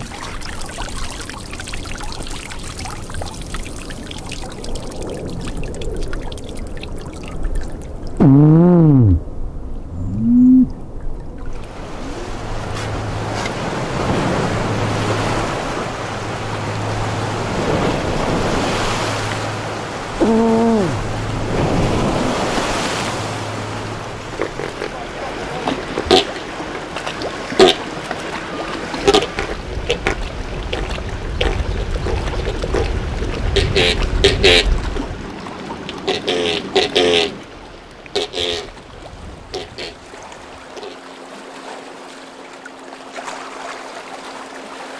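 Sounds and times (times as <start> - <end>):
sea water lapping: 0.0 - 44.9
steady low hum: 8.1 - 13.4
wind on microphone: 8.2 - 11.3.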